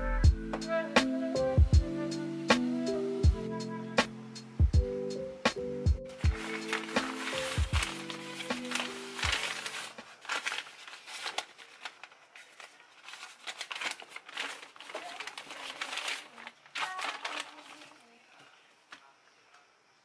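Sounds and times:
paper bag rustling and crinkling: 0:06.1 - 0:19.1.

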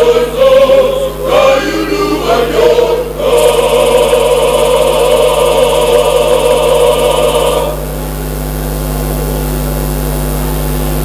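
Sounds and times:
male choir singing: 0:00.0 - 0:07.9
electrical hum: 0:00.0 - 0:11.0.

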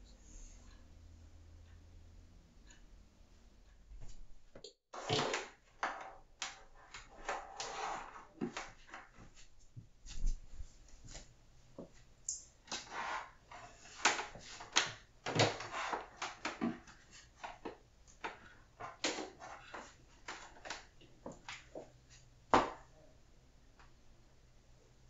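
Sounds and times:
clicks and knocks of desk items: 0:05.0 - 0:09.5, 0:12.6 - 0:22.9.

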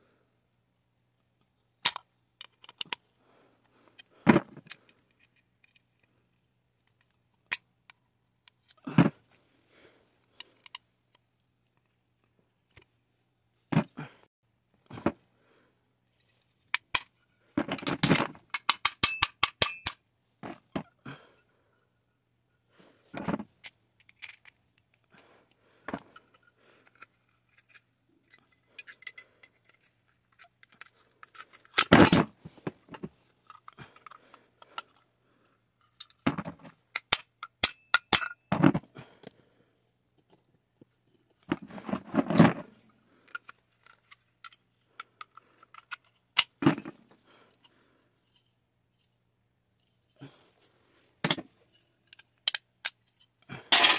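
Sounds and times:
metal stove parts clinking and scraping: 0:16.3 - 0:20.1, 0:26.1 - 0:35.0, 0:36.9 - 0:38.5, 0:41.5 - 0:44.6, 0:45.2 - 0:46.9, 0:51.2 - 0:53.9
metal parts clattering: 0:16.9 - 0:20.1, 0:35.9 - 0:38.5, 0:53.6 - 0:53.9.

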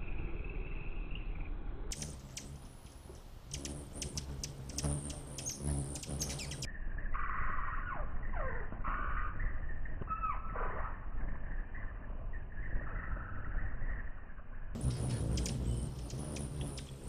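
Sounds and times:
hummingbird wing hum: 0:01.9 - 0:06.7, 0:14.8 - 0:17.0.

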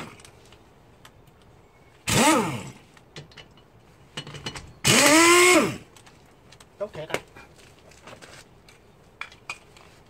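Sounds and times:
power wrench spinning: 0:04.8 - 0:05.8.

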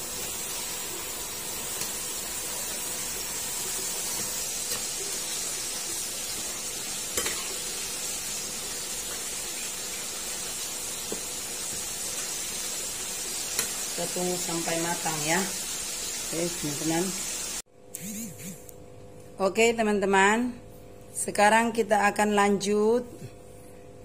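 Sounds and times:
food deep-frying in hot oil: 0:00.0 - 0:17.6.

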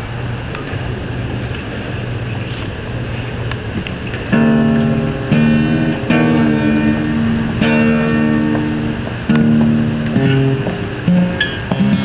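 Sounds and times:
acoustic guitar strummed: 0:04.2 - 0:12.0.

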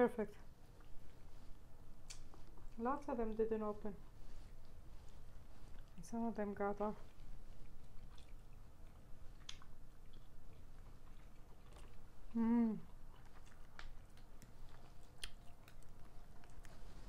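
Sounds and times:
chewing and mouth sounds: 0:00.5 - 0:06.1, 0:07.0 - 0:17.0
short hum-like vocal sound: 0:12.2 - 0:13.0.

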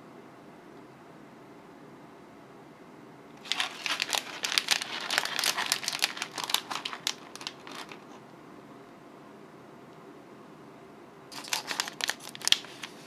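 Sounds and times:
plastic wrappers crinkling: 0:03.4 - 0:08.2, 0:11.3 - 0:13.0.

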